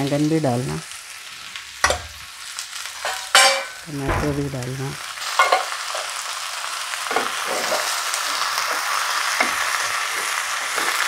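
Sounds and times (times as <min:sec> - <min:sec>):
vegetables sizzling in hot oil: 0:00.0 - 0:11.0
spoon scraping a pan: 0:03.0 - 0:03.8, 0:05.3 - 0:06.2, 0:07.1 - 0:11.0.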